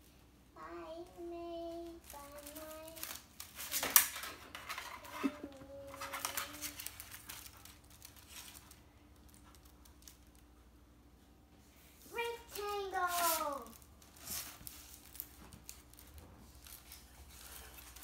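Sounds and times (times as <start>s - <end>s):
child singing: 0.6s - 3.2s, 5.2s - 6.9s
rustling and clicking: 1.8s - 10.5s, 12.2s - 18.0s
sharp crackle: 12.6s - 18.0s.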